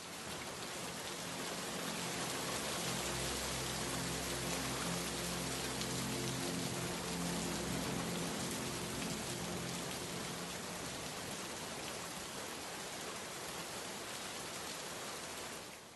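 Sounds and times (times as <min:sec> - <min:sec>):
rain on hard surface: 0:00.0 - 0:15.9
low steady tones: 0:00.8 - 0:11.6.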